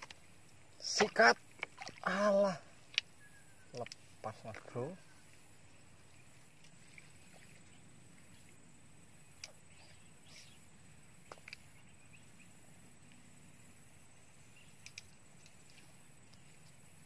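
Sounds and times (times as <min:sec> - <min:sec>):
faint chirps: 0:02.1 - 0:03.9, 0:04.7 - 0:17.0
faint sharp clicks: 0:03.7 - 0:04.0, 0:09.4 - 0:09.6, 0:14.7 - 0:16.8.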